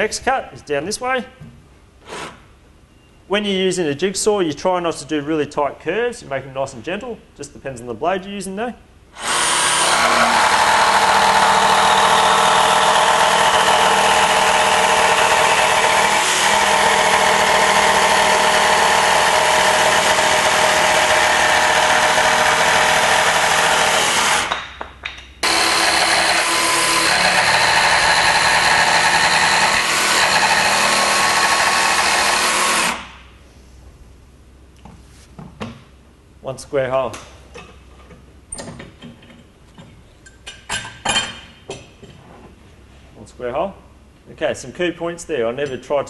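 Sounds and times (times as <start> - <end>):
jigsaw cutting plywood: 9.2 - 24.5, 25.4 - 33.1.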